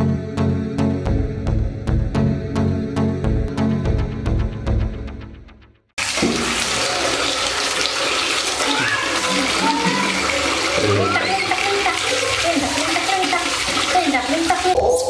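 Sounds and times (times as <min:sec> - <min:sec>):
tap water pouring into basin: 0:06.0 - 0:14.8
water splashing: 0:06.0 - 0:15.0.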